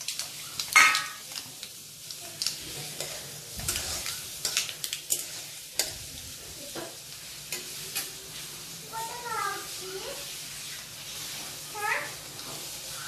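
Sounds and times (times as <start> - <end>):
spices sizzling in hot oil: 0.0 - 13.0.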